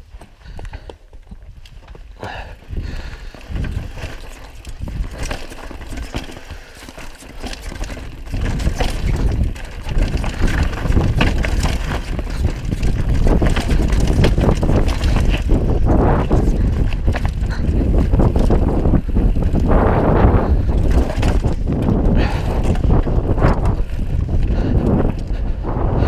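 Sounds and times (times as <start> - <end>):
bike clattering over bumps: 0.0 - 26.0
bike tyres crunching over rock: 0.0 - 26.0
wind rumbling on microphone: 0.0 - 26.0.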